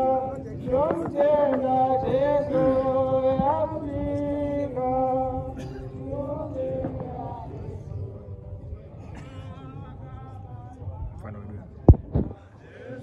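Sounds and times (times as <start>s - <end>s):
man singing a hymn: 0.0s - 8.6s.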